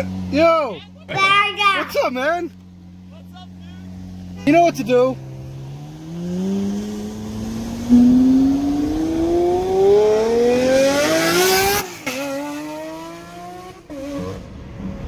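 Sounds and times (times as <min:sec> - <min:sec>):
car engine accelerating hard: 0:03.8 - 0:15.0.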